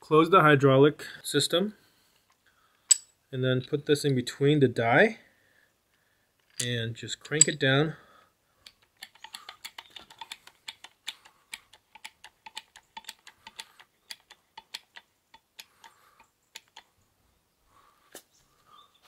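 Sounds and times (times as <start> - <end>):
hand crimper clicking: 8.6 - 16.9.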